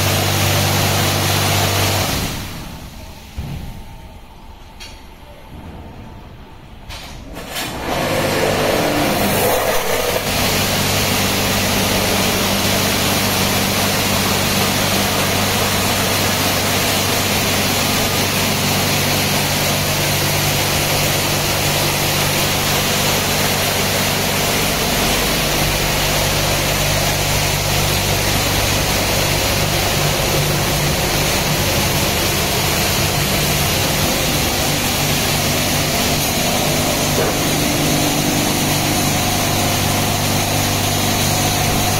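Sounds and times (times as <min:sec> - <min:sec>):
pump motor hum: 0:00.0 - 0:03.8, 0:07.4 - 0:41.9
high-pressure water spray hissing: 0:08.5 - 0:41.9.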